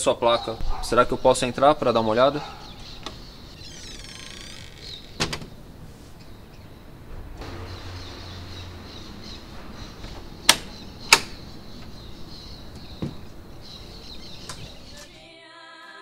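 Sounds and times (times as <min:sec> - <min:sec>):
birds chirping faintly: 0:00.0 - 0:15.2
door lock clicking: 0:02.8 - 0:05.6, 0:10.0 - 0:12.0, 0:12.7 - 0:15.1.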